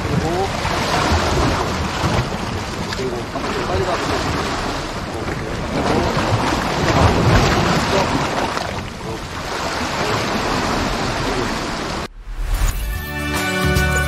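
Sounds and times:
waves washing against rocks: 0:00.0 - 0:12.1.

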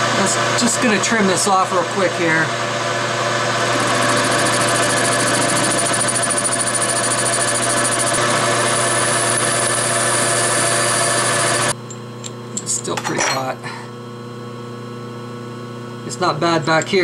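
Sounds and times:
metal lathe running with whine: 0:00.0 - 0:11.8.

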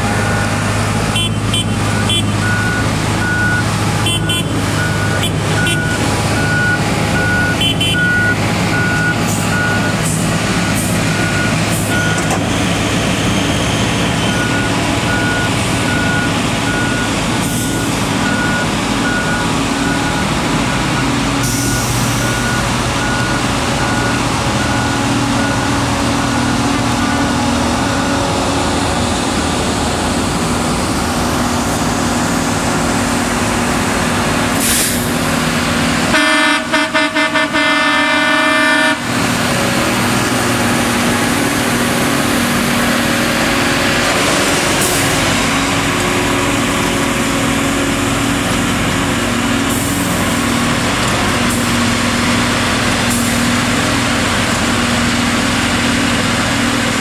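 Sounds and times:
diesel engines running: 0:00.0 - 0:57.0
horn toots and blast: 0:01.1 - 0:02.4, 0:04.0 - 0:06.0, 0:36.1 - 0:39.4.

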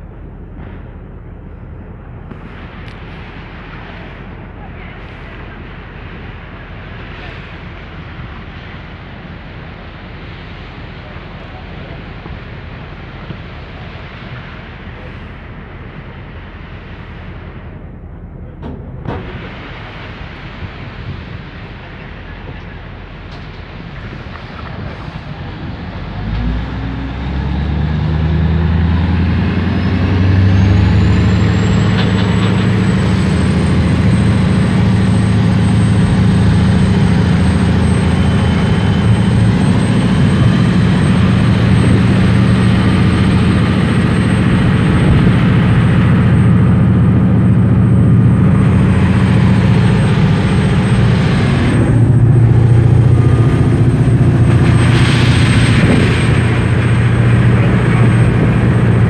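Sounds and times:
rough water: 0:18.7 - 0:59.0
boat engine running: 0:21.1 - 0:59.0.

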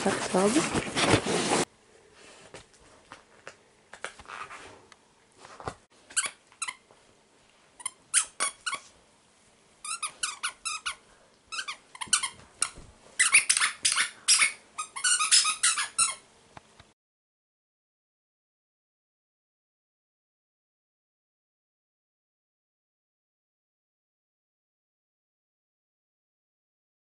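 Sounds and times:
dog toy squeaking: 0:06.1 - 0:06.8, 0:07.8 - 0:08.9, 0:09.8 - 0:16.2.

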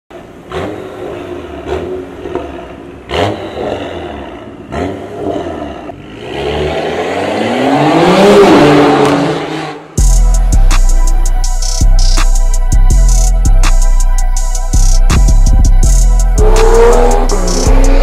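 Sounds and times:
car engine revving: 0:00.2 - 0:10.1, 0:15.0 - 0:18.0
electronic music with drum beat: 0:10.0 - 0:18.0.

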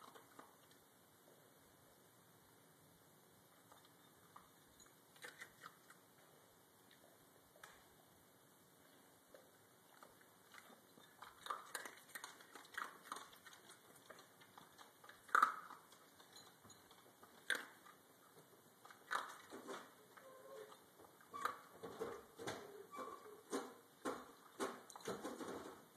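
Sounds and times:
dog crunching dry kibble: 0:10.0 - 0:18.0, 0:18.8 - 0:19.7.

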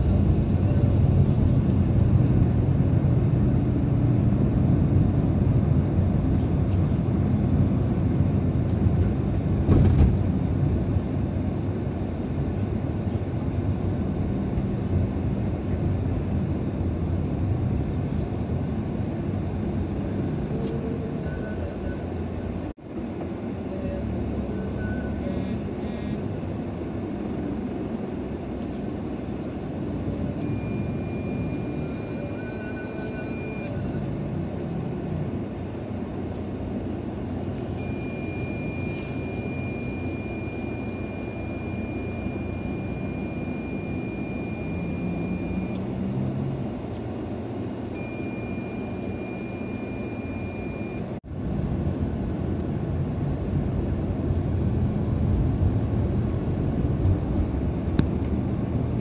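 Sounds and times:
car engine and road noise: 0:00.0 - 0:59.0
faint high whine: 0:30.3 - 0:34.0, 0:37.5 - 0:45.8, 0:47.9 - 0:51.0.

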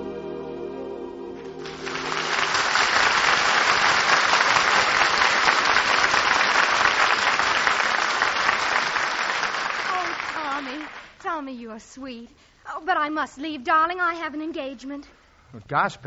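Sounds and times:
orchestra playing: 0:00.0 - 0:04.1
audience applause: 0:01.5 - 0:11.2.

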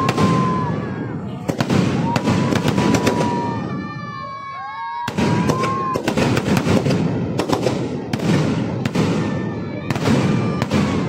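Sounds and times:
high firework whistle: 0:00.0 - 0:01.1, 0:01.8 - 0:07.2
fireworks bangs and crackles: 0:00.0 - 0:11.0.

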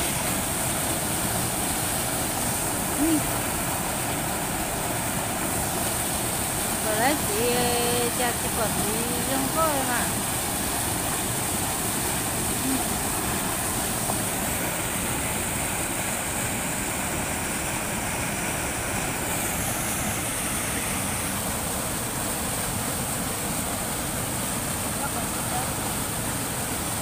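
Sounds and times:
stream rushing through rapids: 0:00.0 - 0:27.0.

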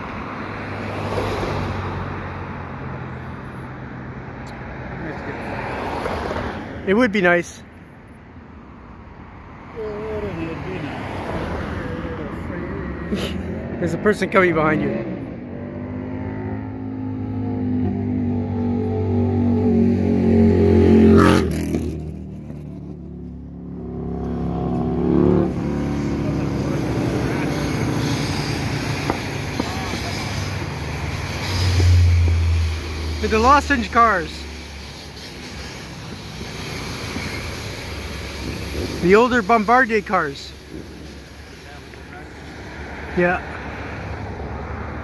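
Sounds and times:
road traffic rumble: 0:00.0 - 0:45.0
vehicle engine passing: 0:09.8 - 0:45.0
whoosh of tyres: 0:14.8 - 0:39.1.

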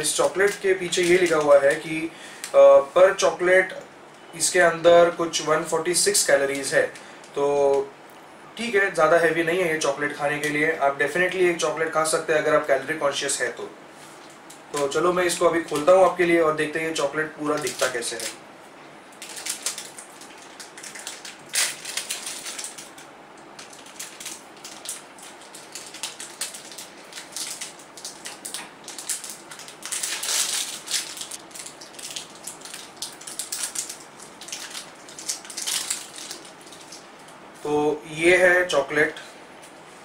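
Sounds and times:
wrapper crinkling and tearing: 0:00.0 - 0:02.0, 0:17.0 - 0:18.4, 0:19.1 - 0:37.4.

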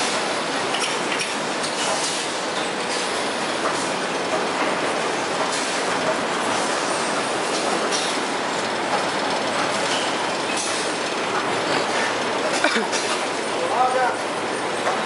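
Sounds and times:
conveyors clattering: 0:00.0 - 0:15.0.

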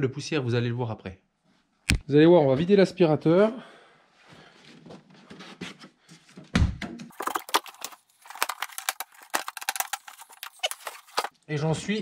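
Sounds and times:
plastic clicks and rattles: 0:07.1 - 0:11.3.

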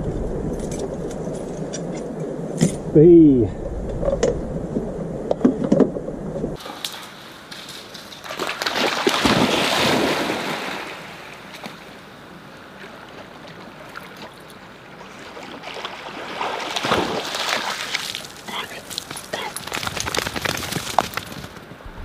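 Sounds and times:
wind: 0:00.0 - 0:22.0
river water at shore: 0:04.0 - 0:20.2.

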